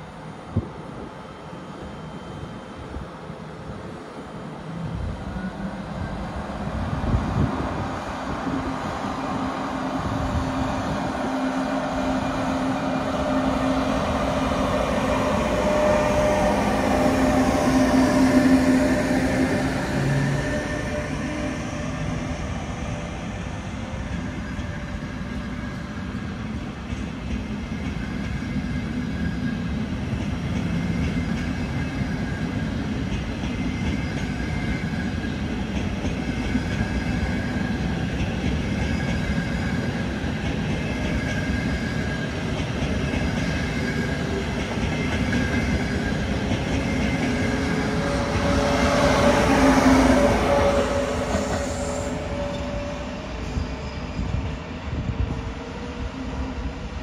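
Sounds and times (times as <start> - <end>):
train wheels rumbling on track: 0.0 - 57.0.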